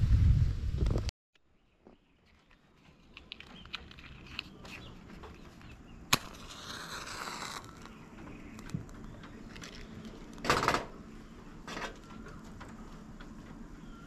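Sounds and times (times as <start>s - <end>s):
match head hissing: 6.1s - 7.9s
match strike: 6.1s - 7.9s.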